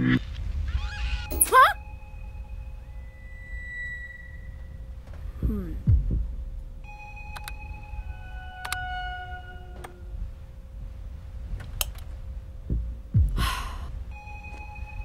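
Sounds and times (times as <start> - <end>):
soft clicks: 7.3 - 7.6.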